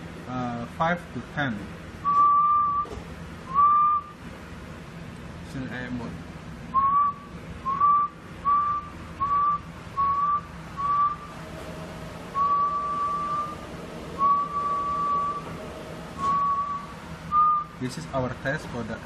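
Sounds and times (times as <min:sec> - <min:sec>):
person whistling: 0:02.1 - 0:02.9, 0:03.5 - 0:04.1, 0:06.8 - 0:11.2, 0:12.4 - 0:13.6, 0:14.2 - 0:15.4, 0:16.2 - 0:17.7.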